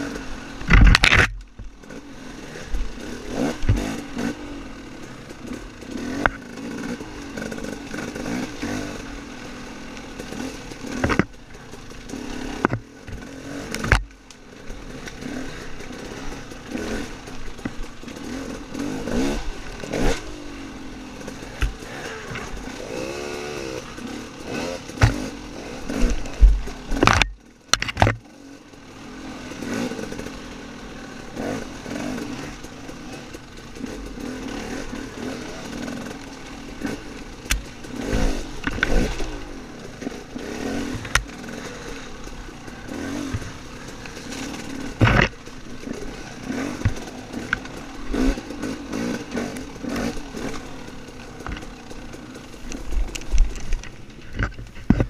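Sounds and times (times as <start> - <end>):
dirt bike engine revving: 0.0 - 55.0
bike knocking on bumps: 10.9 - 11.5, 24.9 - 25.3, 43.2 - 45.4, 46.5 - 50.5, 52.8 - 55.0.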